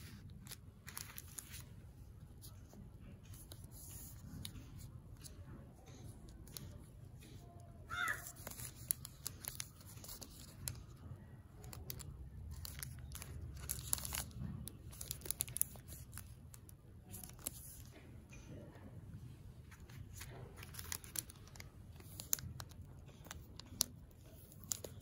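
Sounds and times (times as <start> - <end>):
plastic wrapper crinkling: 0.0 - 1.7, 8.0 - 18.0, 19.6 - 25.0.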